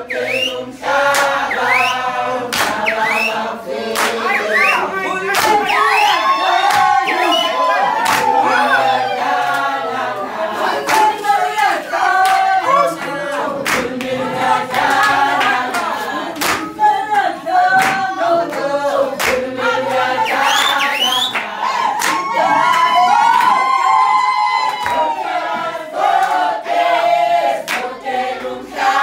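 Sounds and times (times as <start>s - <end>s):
women singing together: 0.0s - 29.0s
hand claps: 1.0s - 8.4s, 10.8s - 11.2s, 12.2s - 19.5s, 20.3s - 23.8s, 24.7s - 25.1s, 26.1s - 26.5s, 27.6s - 28.5s
high rising cries: 4.2s - 10.0s.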